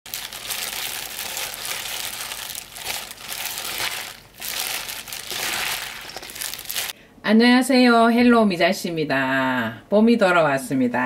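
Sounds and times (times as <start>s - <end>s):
leaves rustling: 0.1s - 6.9s
plastic gloves crinkling: 0.1s - 7.0s.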